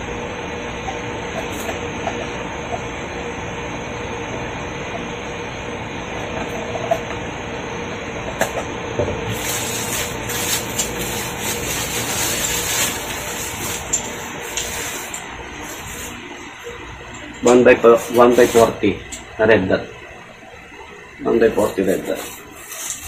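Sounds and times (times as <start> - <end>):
plastic packaging crinkling: 9.3 - 16.3.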